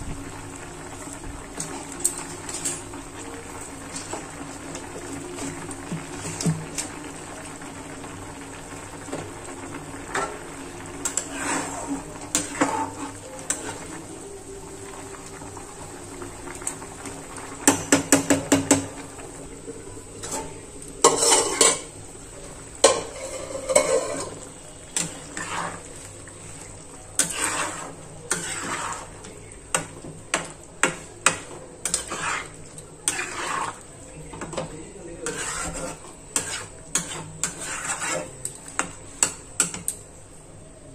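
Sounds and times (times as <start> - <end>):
curry simmering: 0.0 - 40.9
spatula scraping a pot: 10.1 - 14.0, 20.2 - 21.9, 22.8 - 34.0, 34.6 - 39.9
cookware clanking: 20.2 - 22.0, 22.8 - 25.8.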